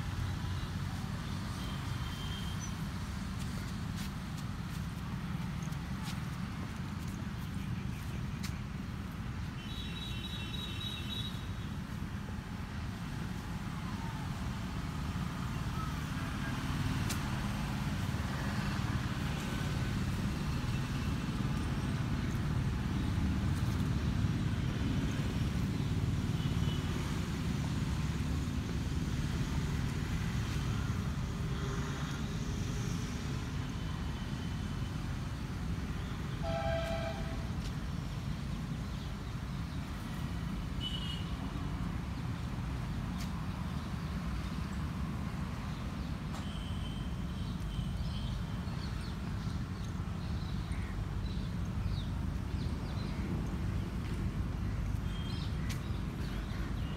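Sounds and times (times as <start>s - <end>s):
distant road traffic rumble: 0.0s - 56.9s
vehicle horn toot: 36.4s - 37.5s, 40.8s - 41.3s.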